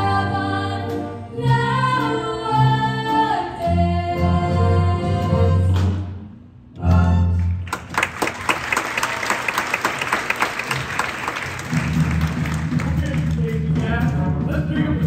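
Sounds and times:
pit band playing: 0:00.0 - 0:15.0
audience applauding: 0:07.6 - 0:14.1.

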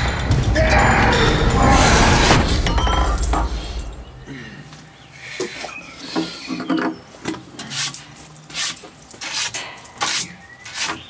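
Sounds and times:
rubbing on wooden tabletop: 0:07.7 - 0:11.0.

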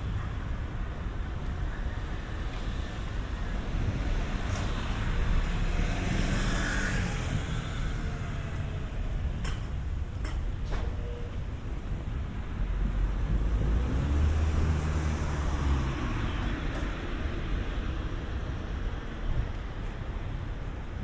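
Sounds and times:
wind rumble on microphone: 0:00.0 - 0:21.0
car passing: 0:02.8 - 0:09.0, 0:12.8 - 0:18.3
motor scooter passing: 0:05.4 - 0:08.5.

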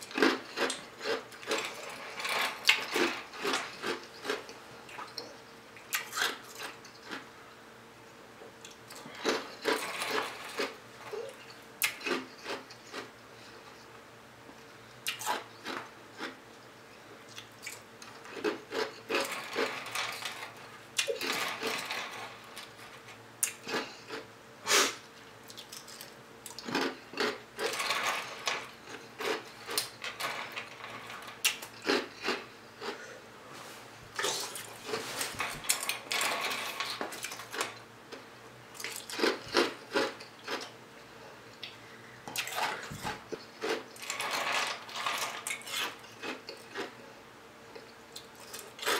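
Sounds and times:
ice being crunched and chewed: 0:00.0 - 0:05.3, 0:08.9 - 0:13.1, 0:25.5 - 0:27.8, 0:31.4 - 0:33.0, 0:38.8 - 0:40.7.

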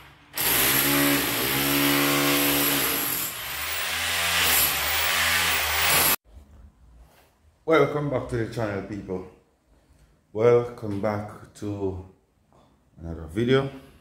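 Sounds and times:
electric power tool running: 0:00.3 - 0:06.2.

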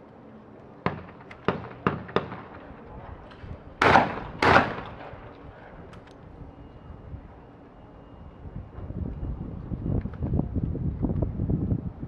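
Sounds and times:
shotgun shots: 0:00.8 - 0:02.6, 0:03.8 - 0:05.2.

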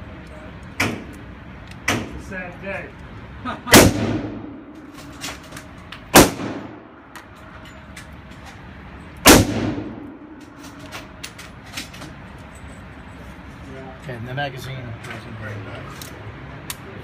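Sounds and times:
gunshots echoing indoors: 0:03.7 - 0:04.8, 0:06.1 - 0:07.0, 0:09.2 - 0:10.4.

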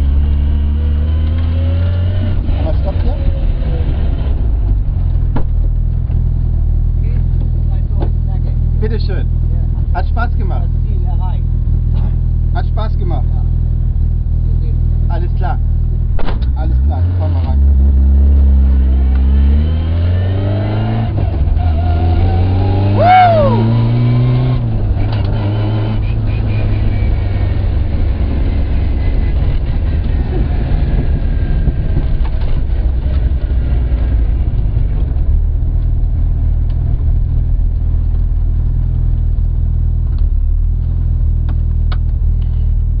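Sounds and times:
car engine accelerating: 0:00.0 - 0:43.0
road noise: 0:00.0 - 0:43.0.

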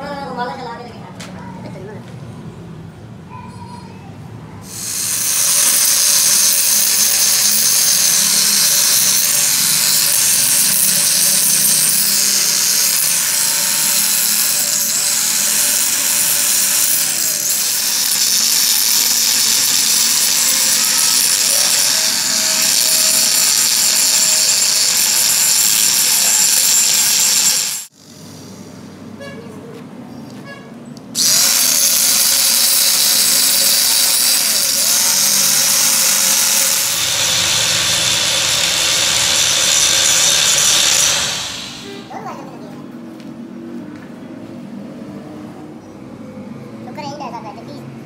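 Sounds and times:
angle grinder grinding steel: 0:04.6 - 0:28.4, 0:31.2 - 0:42.1.

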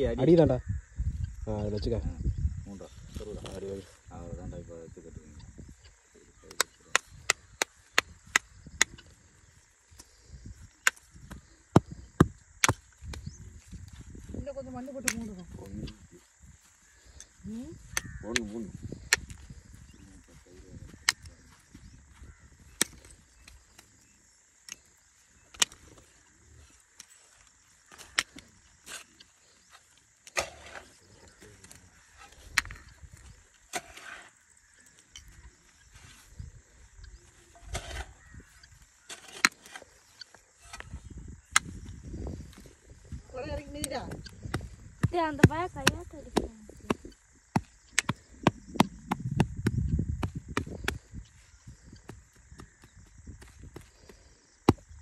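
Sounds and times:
hand tool striking wood: 0:10.8 - 0:13.2, 0:27.9 - 0:30.9, 0:44.1 - 0:51.0, 0:54.6 - 0:54.8
hands scraping and patting soil: 0:12.6 - 0:34.4, 0:35.3 - 0:55.0.

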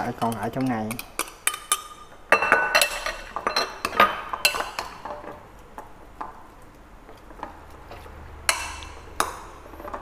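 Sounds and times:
metal spoon clinking on ceramic bowl: 0:00.2 - 0:05.0.

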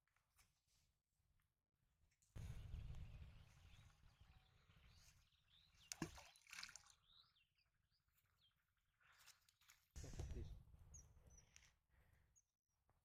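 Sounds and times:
wind rumble on microphone: 0:02.4 - 0:05.0
object splashing into water: 0:05.9 - 0:07.0.

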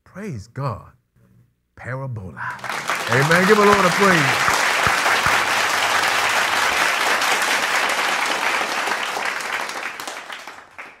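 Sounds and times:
crowd applauding: 0:02.6 - 0:11.0.

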